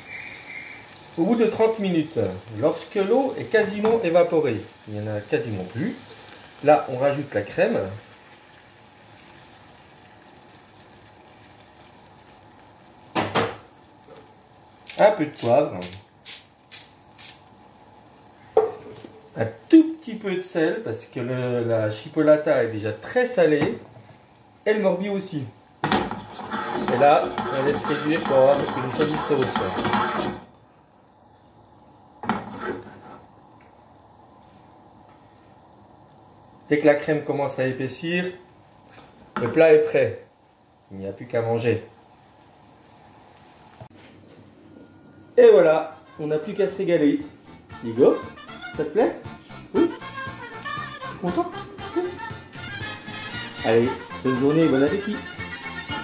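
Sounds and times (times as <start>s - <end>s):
pan simmering with hiss: 0.0s - 56.0s
utensil scraping frying pan: 25.8s - 30.5s, 32.2s - 33.4s, 52.6s - 55.9s.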